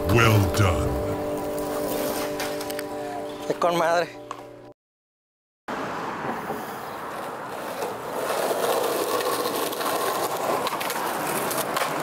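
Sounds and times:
skateboard wheels rolling on concrete: 0:05.7 - 0:12.0.

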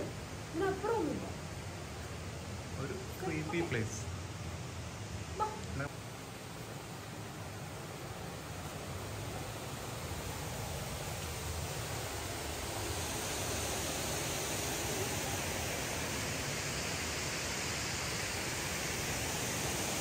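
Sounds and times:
cascading water roar: 0:00.0 - 0:20.0.

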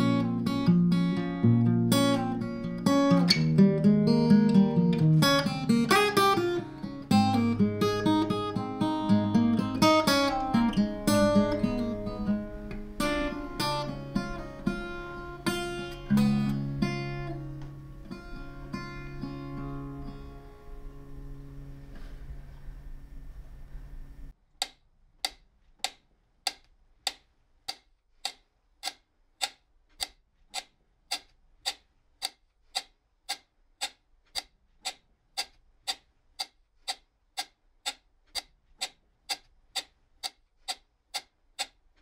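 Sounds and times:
metronome ticking: 0:00.0 - 0:21.2, 0:24.6 - 0:41.9
acoustic guitar notes: 0:00.0 - 0:24.3.

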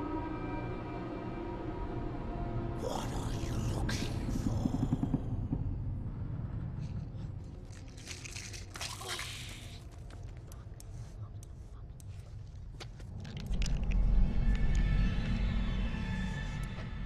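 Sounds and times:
low rumbling drone: 0:00.0 - 0:08.8, 0:09.5 - 0:17.0
rustling and clicking in bag: 0:07.4 - 0:11.0.

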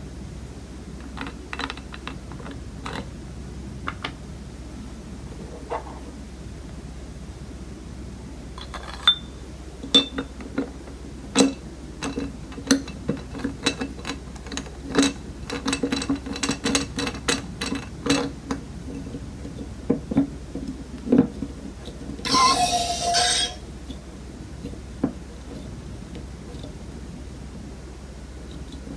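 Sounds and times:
metal clicks and knocks: 0:01.0 - 0:03.1.

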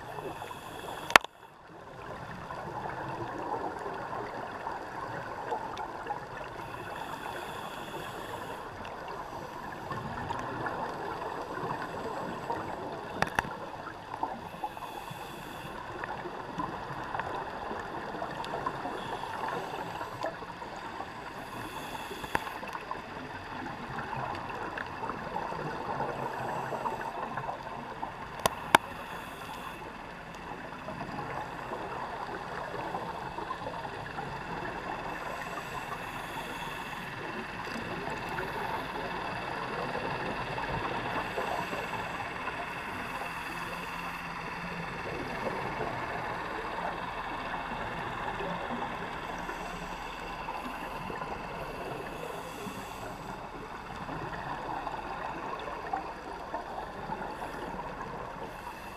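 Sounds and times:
underwater rush of water: 0:00.0 - 0:58.9
faint hissing bursts: 0:00.1 - 0:01.5, 0:06.5 - 0:10.0, 0:14.2 - 0:16.2, 0:18.0 - 0:22.8, 0:28.0 - 0:30.1.

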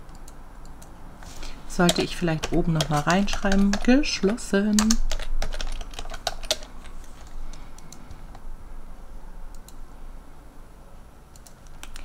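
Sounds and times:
computer keyboard typing: 0:01.8 - 0:08.4, 0:11.4 - 0:12.0.

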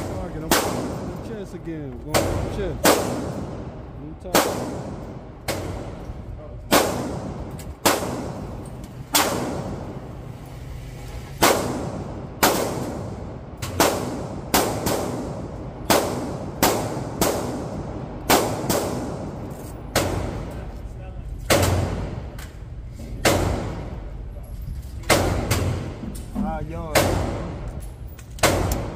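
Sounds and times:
pistol shots echoing indoors: 0:00.0 - 0:01.3, 0:02.1 - 0:06.0, 0:06.6 - 0:10.0, 0:11.4 - 0:20.6, 0:28.4 - 0:28.9.

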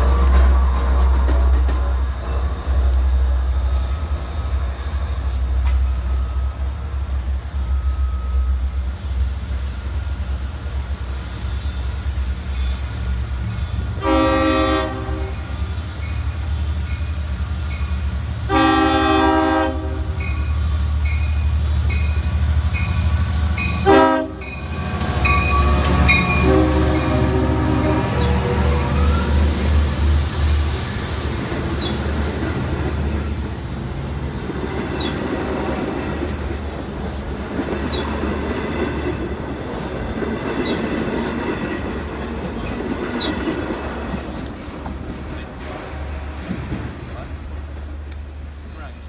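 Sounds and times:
train engine and wheel rumble: 0:00.0 - 0:49.0
locomotive air horn: 0:14.0 - 0:15.5, 0:18.5 - 0:20.2, 0:23.8 - 0:24.5, 0:25.5 - 0:29.3.

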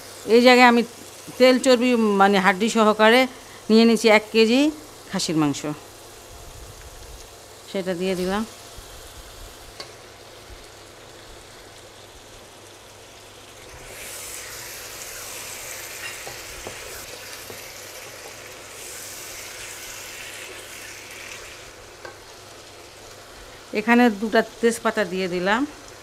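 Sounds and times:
meat sizzling in hot oil: 0:00.0 - 0:26.0.

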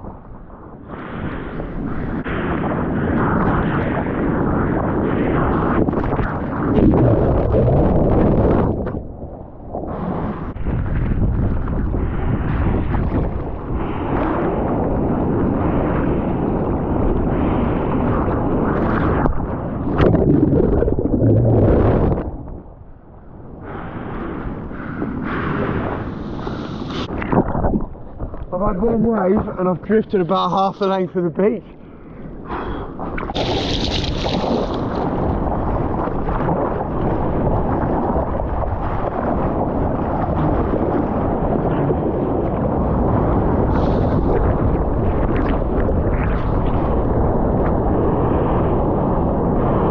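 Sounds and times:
wind buffeting microphone: 0:00.0 - 0:49.9
water splash: 0:33.2 - 0:35.4
rushing seawater: 0:33.2 - 0:47.4.

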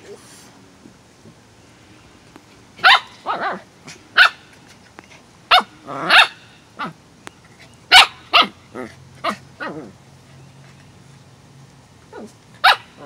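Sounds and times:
dogs barking: 0:02.8 - 0:03.6, 0:04.2 - 0:04.4, 0:05.5 - 0:07.0, 0:07.9 - 0:09.9, 0:12.2 - 0:13.0.

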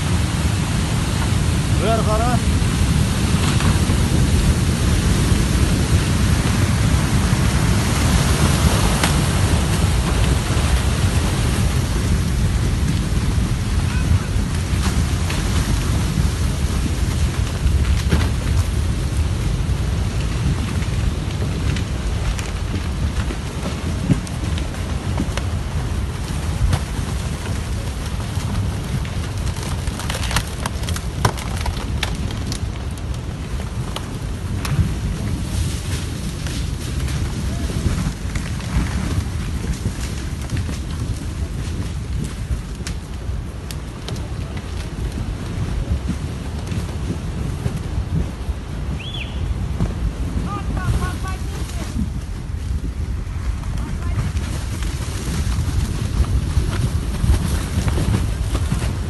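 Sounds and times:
mudflow rushing with low rumble: 0:00.0 - 0:59.0.

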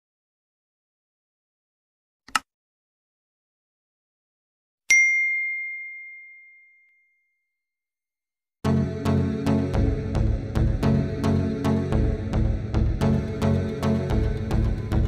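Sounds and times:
notification bell ding: 0:04.9 - 0:07.3.

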